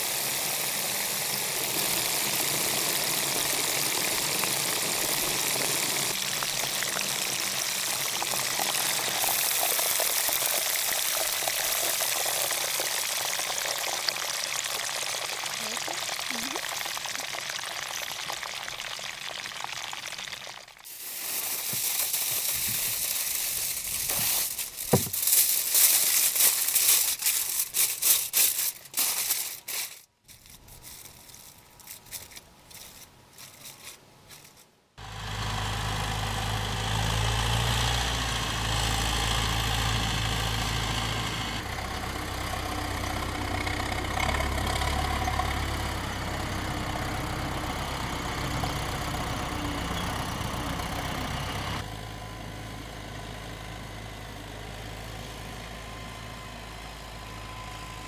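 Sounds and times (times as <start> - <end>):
steak sizzling and crackling: 0.0 - 15.3, 20.8 - 29.9
low mechanical hum: 40.0 - 58.0.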